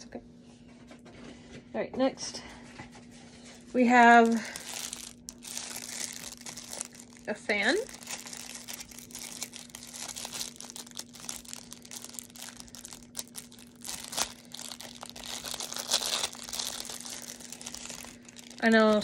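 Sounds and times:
faint low hum: 0:00.0 - 0:19.0
plastic packaging crinkling: 0:03.8 - 0:19.0.

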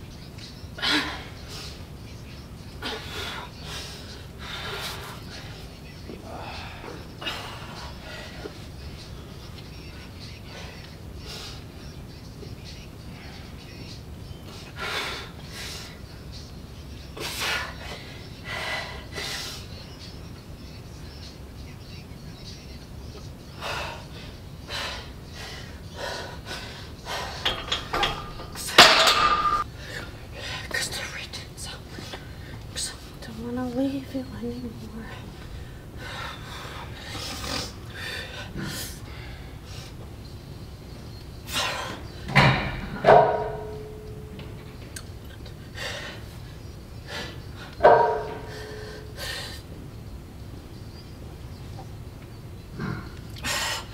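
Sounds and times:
woman breathing forcefully: 0:02.8 - 0:08.8, 0:14.5 - 0:16.0, 0:17.2 - 0:19.8, 0:23.6 - 0:28.9, 0:35.2 - 0:40.2, 0:45.5 - 0:49.8, 0:52.8 - 0:53.9
barbell clanking on rack: 0:27.4 - 0:29.6, 0:42.3 - 0:44.2, 0:47.8 - 0:48.8.

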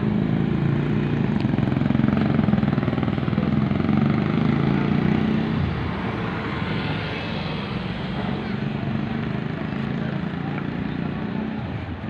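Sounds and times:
motorcycle engine idling: 0:00.0 - 0:04.4.

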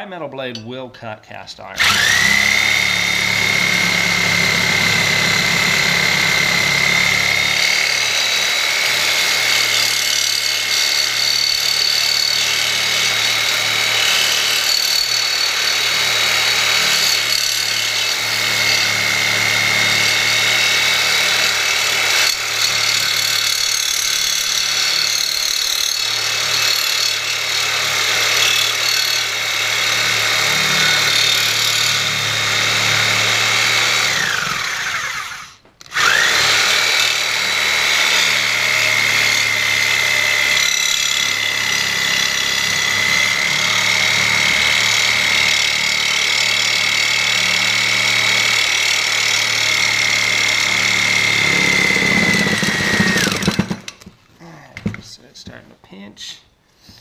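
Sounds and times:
reciprocating saw cutting metal: 0:01.8 - 0:53.9.

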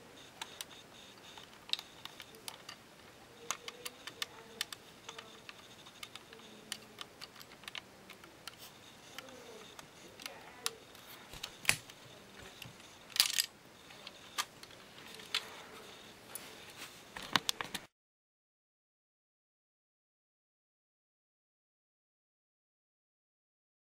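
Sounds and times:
plastic parts clicking: 0:01.4 - 0:02.8, 0:03.4 - 0:15.5.

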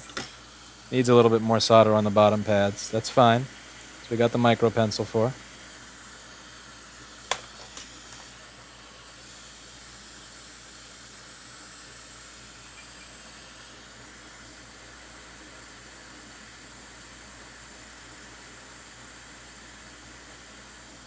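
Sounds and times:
hot air station hissing: 0:00.0 - 0:21.0.

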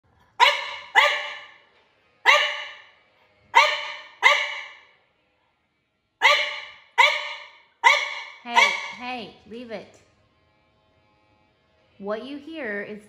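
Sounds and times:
dog barking: 0:00.4 - 0:01.6, 0:02.2 - 0:02.9, 0:03.5 - 0:04.9, 0:06.2 - 0:09.0.

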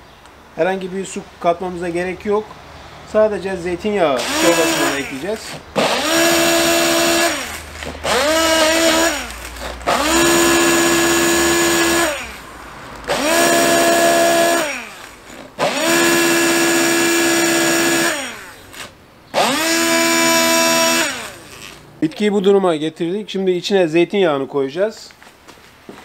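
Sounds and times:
stick blender motor whine: 0:04.2 - 0:12.4, 0:13.0 - 0:21.8.

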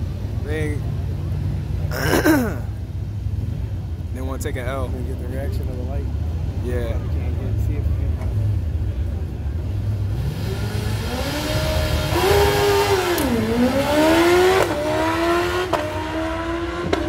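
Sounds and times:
motorcycle engine revving through gears: 0:10.0 - 0:17.0.

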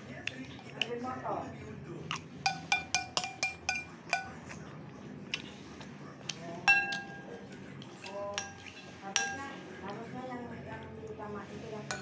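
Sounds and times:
spoon clinking against a plate: 0:02.1 - 0:04.6, 0:06.6 - 0:09.6.

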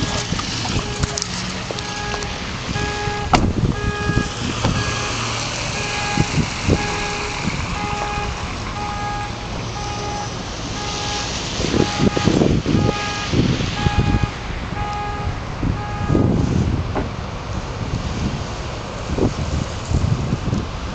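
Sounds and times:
two-pitch electronic beeping: 0:01.8 - 0:16.3.

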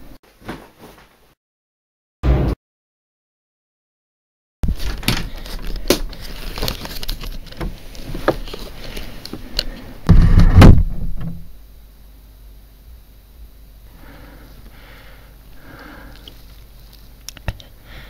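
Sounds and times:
heavy low thud: 0:02.2 - 0:02.6, 0:10.1 - 0:11.5.

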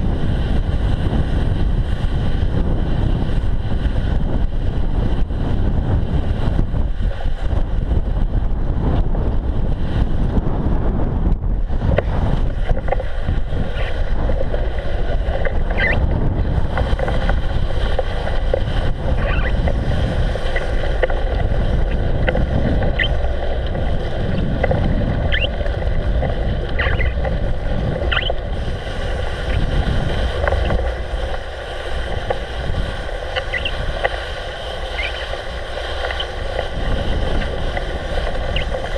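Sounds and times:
bike rolling on slushy path: 0:00.0 - 0:38.9
wind buffeting microphone: 0:00.0 - 0:38.9
short high squeaks: 0:15.7 - 0:16.0, 0:19.2 - 0:19.6, 0:23.0 - 0:23.2, 0:25.3 - 0:25.5, 0:26.8 - 0:27.2, 0:28.1 - 0:28.4, 0:33.4 - 0:33.8, 0:35.0 - 0:35.3.

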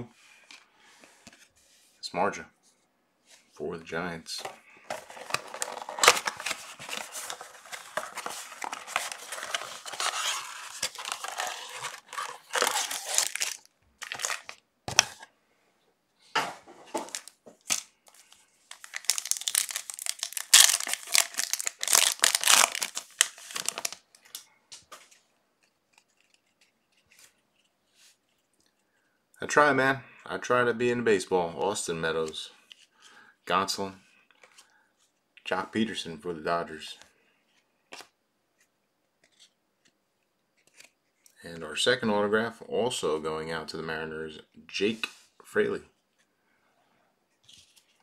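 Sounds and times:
foil wrappers crinkling: 0:04.9 - 0:15.1, 0:17.0 - 0:24.4
foil wrapper ripping: 0:05.6 - 0:14.5, 0:18.7 - 0:24.0.

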